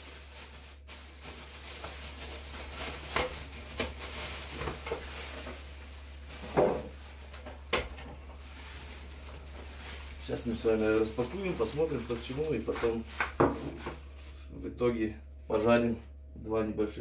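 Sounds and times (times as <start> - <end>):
plastic wrapping crinkling: 0.0 - 14.6.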